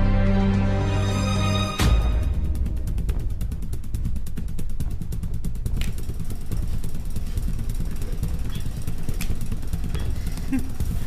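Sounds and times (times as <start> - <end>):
fogging machine rumbling: 2.2 - 11.0.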